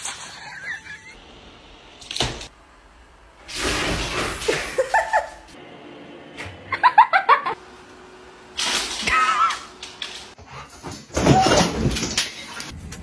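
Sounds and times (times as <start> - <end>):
person laughing: 0.3 - 1.2, 4.4 - 5.5, 6.7 - 7.6.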